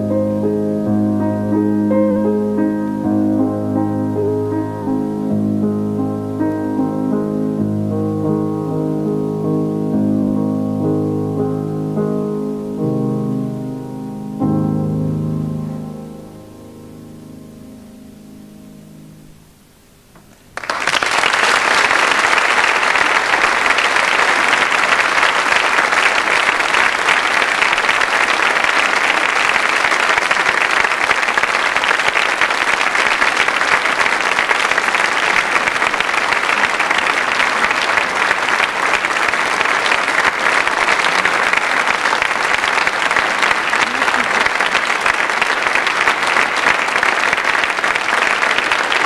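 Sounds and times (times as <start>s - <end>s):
audience applause: 20.5s - 49.0s.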